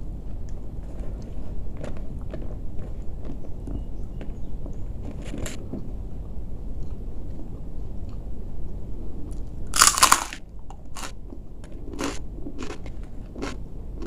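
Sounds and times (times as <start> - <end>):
crunchy chewing: 0.2 - 5.9, 9.2 - 14.0
cracker crunch bite: 9.4 - 13.6.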